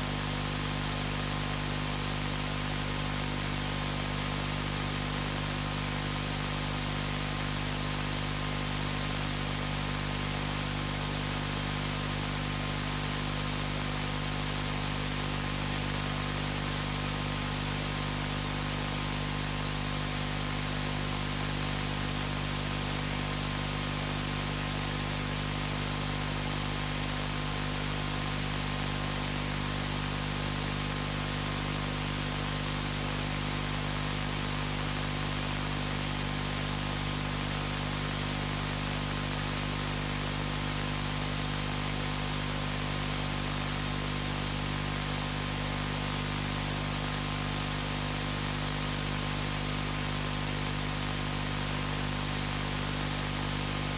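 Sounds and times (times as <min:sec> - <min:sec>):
low electrical hum: 0:17.5 - 0:20.1.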